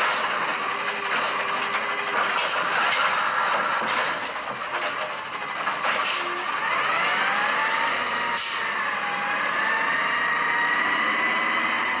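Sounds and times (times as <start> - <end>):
truck engine and drivetrain whine: 0.0 - 12.0
air brake hiss: 8.4 - 8.6.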